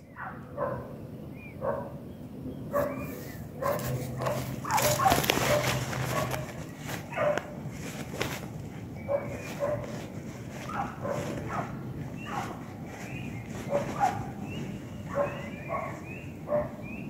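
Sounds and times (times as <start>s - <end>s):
dogs baying and yelping: 2.6s - 7.7s, 8.8s - 17.0s
rustling in undergrowth: 2.7s - 17.0s.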